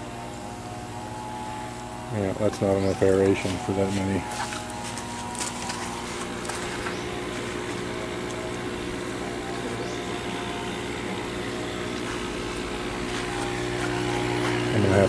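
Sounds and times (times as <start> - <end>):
electric pump humming: 0.0 - 15.0.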